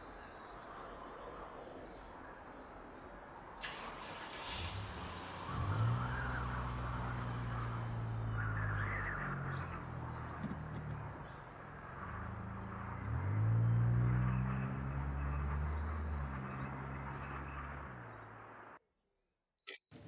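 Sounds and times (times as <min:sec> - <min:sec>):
car engine accelerating: 0:03.6 - 0:18.8.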